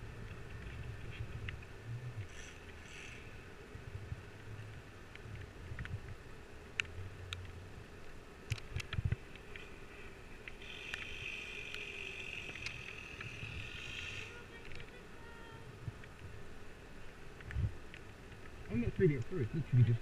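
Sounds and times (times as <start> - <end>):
low wind rumble on microphone: 0.0 - 9.6, 12.2 - 20.0.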